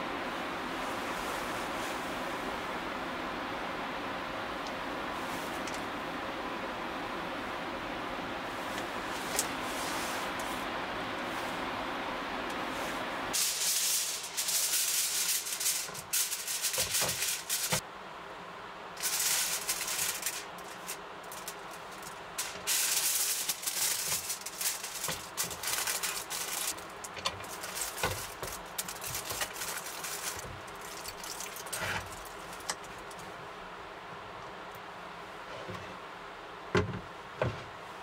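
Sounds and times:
aluminium foil crinkling: 0:13.3 - 0:17.8, 0:19.0 - 0:33.3.

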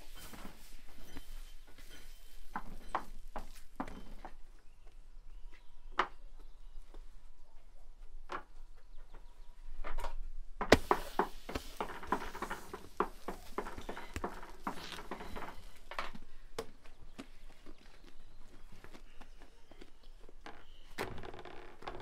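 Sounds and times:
hands slapping dough: 0:10.7 - 0:14.3.

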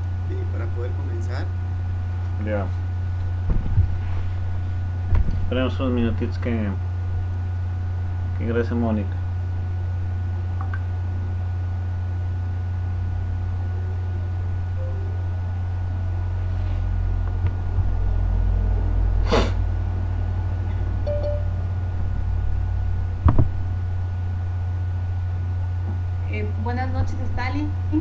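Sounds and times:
low microphone hum: 0:00.0 - 0:28.0
noisy puff: 0:19.2 - 0:19.7.

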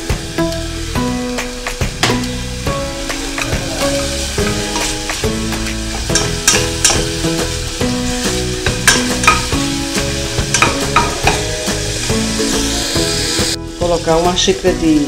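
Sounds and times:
garlic and onion sizzling in oil: 0:00.0 - 0:15.0
wooden spoon clicking and scraping pot: 0:06.1 - 0:07.0, 0:10.5 - 0:11.4.

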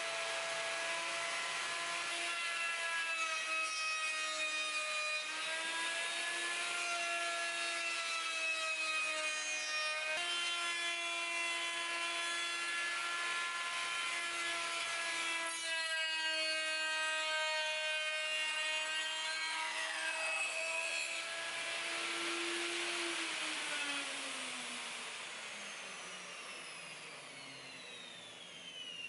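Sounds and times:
router bit cutting wood: 0:00.0 - 0:29.0
router high whine: 0:00.0 - 0:29.0.

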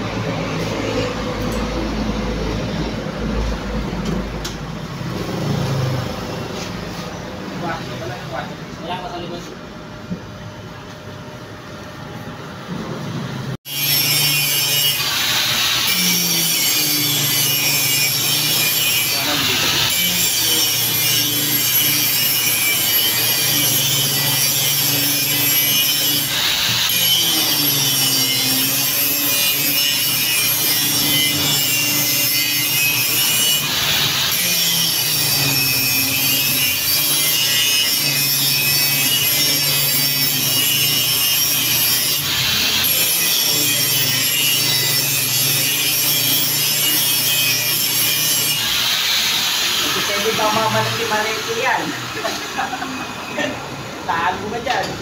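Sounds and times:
angle grinder cutting metal: 0:13.6 - 0:55.0.

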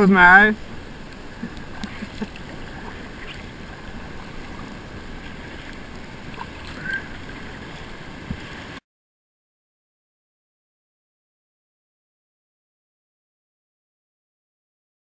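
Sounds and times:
river water rushing and lapping: 0:00.0 - 0:08.8
paddle dipping in water: 0:00.5 - 0:08.8.

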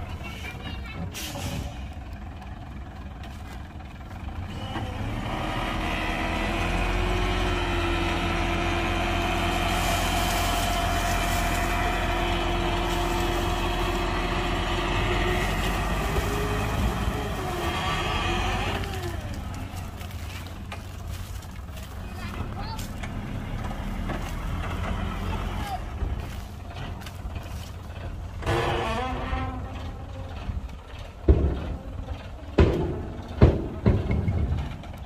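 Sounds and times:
heavy truck engine running: 0:00.0 - 0:35.0
steady engine whine: 0:00.9 - 0:35.0.

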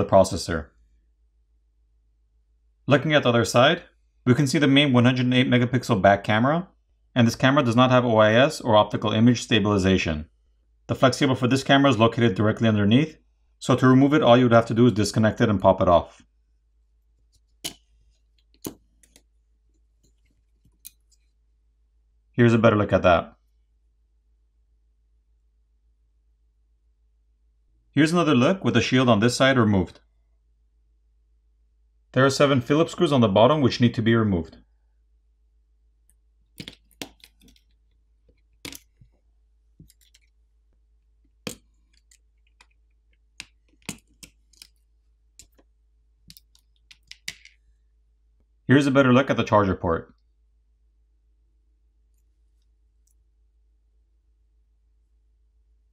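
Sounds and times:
small plastic clicks: 0:41.4 - 0:47.6.

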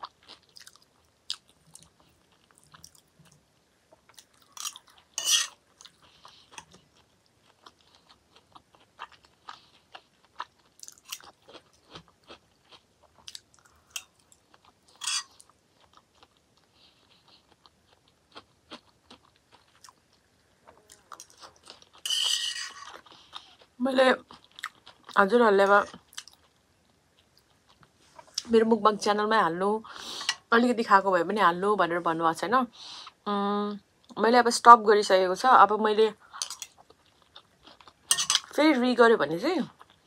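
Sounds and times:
person chewing wetly: 0:00.0 - 0:03.4, 0:05.7 - 0:22.1, 0:24.3 - 0:25.2.

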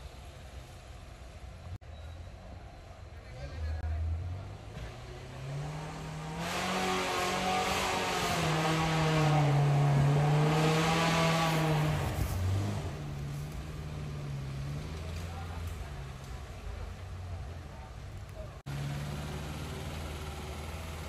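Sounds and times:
engine revving hard: 0:04.4 - 0:13.1.

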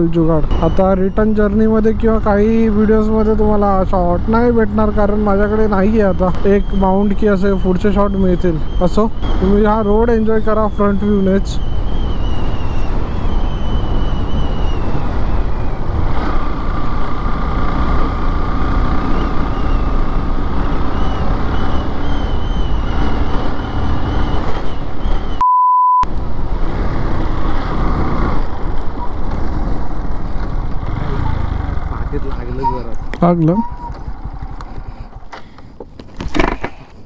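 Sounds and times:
wind and road noise: 0:00.0 - 0:25.4, 0:26.0 - 0:37.0
beep tone: 0:25.4 - 0:26.1, 0:32.6 - 0:34.0
motorcycle engine running: 0:27.8 - 0:35.3.

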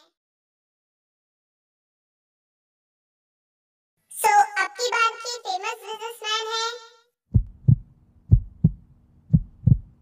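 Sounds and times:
faint steady hum: 0:07.3 - 0:10.0
heartbeat thumps: 0:07.3 - 0:10.0.

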